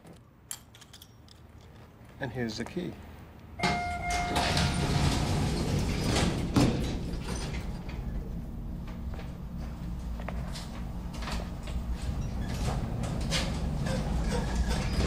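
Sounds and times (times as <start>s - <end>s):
elevator chime: 3.6s - 6.4s
elevator car low hum: 3.6s - 15.0s
elevator doors sliding: 3.6s - 15.0s.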